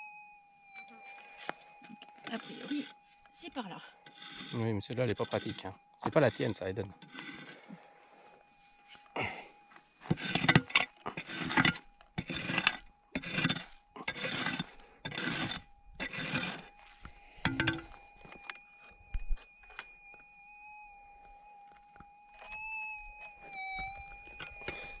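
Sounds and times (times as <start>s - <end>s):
pick scraping stony dirt: 9.2s - 17.9s.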